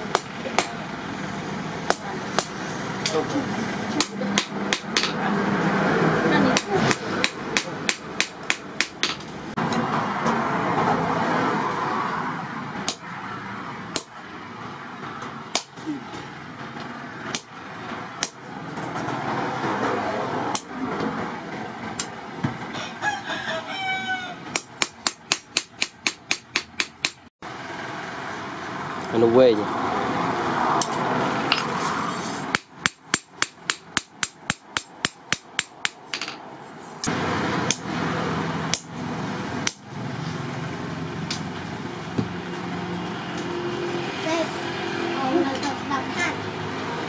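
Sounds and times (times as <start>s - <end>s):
rooster crowing: 22.7s - 24.6s.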